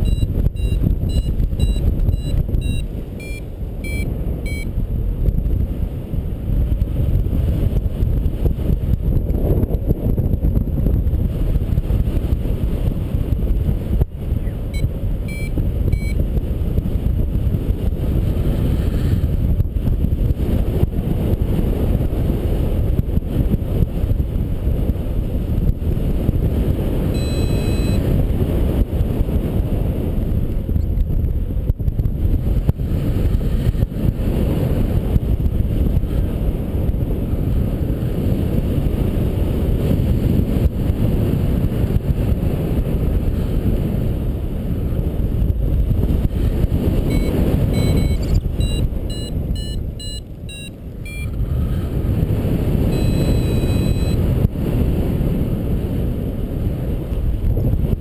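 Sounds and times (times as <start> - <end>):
variometer beeping: 0.0 - 4.7, 14.4 - 16.2, 27.2 - 28.1, 46.4 - 52.0, 52.9 - 54.3
wind buffeting microphone: 0.0 - 58.0.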